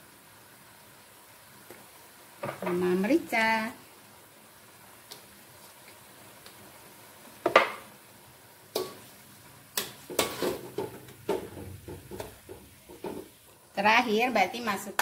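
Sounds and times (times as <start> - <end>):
metal spatula scraping a wok: 9.8 - 11.0.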